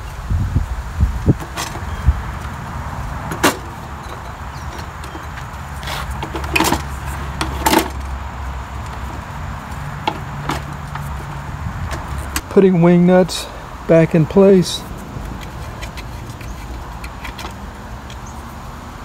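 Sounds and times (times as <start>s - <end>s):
sharp metal clicks and knocks: 3.2s - 8.2s, 8.8s - 12.6s, 15.0s - 18.5s.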